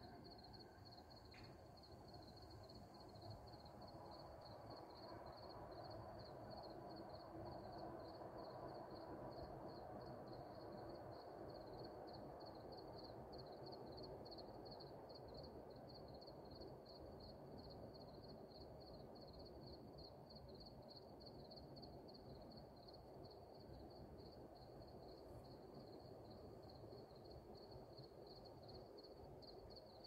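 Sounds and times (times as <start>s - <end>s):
insect chirping: 0.1s - 7.2s.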